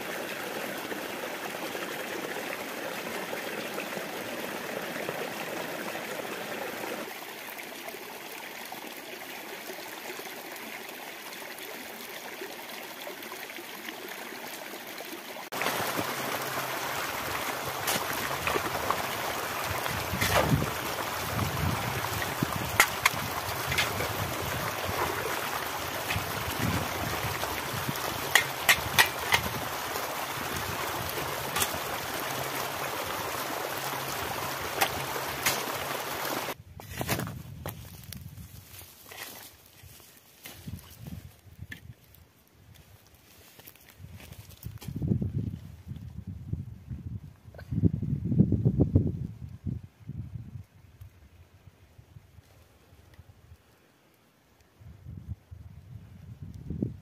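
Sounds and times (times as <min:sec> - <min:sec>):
stream trickling over rocks: 0:00.0 - 0:36.6, 0:37.2 - 0:46.2
water flowing in stony channel: 0:00.0 - 0:44.9
shovel blade striking stones: 0:20.2 - 0:20.6, 0:28.4 - 0:29.5.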